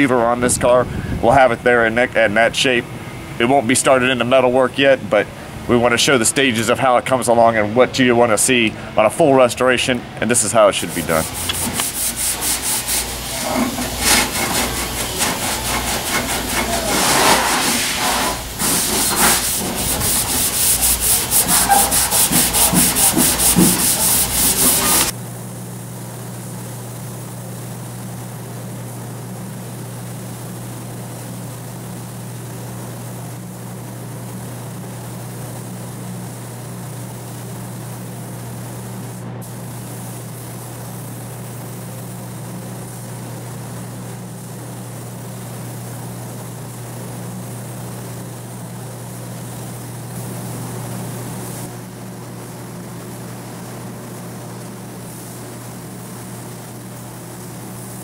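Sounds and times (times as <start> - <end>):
spray gun hissing: 10.6 - 25.2, 38.2 - 45.2, 54.9 - 58.0.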